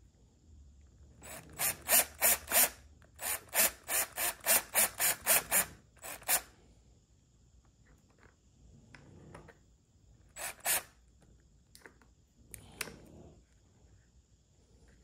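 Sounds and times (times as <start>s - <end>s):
drill driving screw into plastic: 1.2s - 6.5s, 10.3s - 10.9s.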